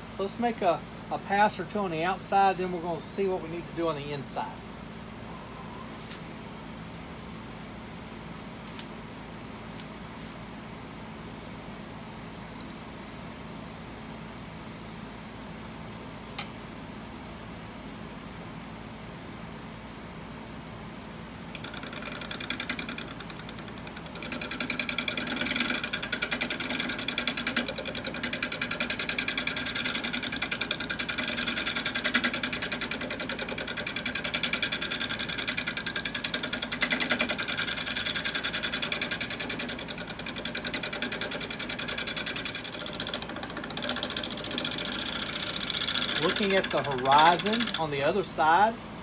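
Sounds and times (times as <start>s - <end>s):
wood lathe hum: 21.5s - 48.4s
gouge cutting wood: 21.6s - 47.9s.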